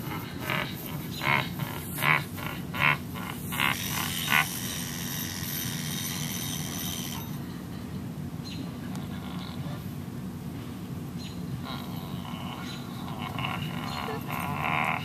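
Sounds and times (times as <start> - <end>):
person grunting rhythmically: 0.0 - 6.2, 12.0 - 15.0.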